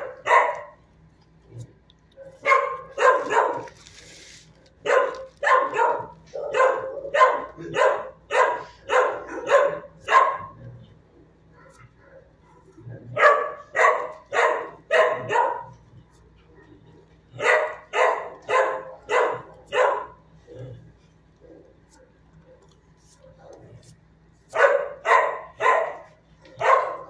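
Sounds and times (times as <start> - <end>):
dog barking: 0.0 - 0.8, 2.2 - 3.8, 4.8 - 10.7, 11.6 - 15.9, 17.3 - 20.2, 24.5 - 27.0.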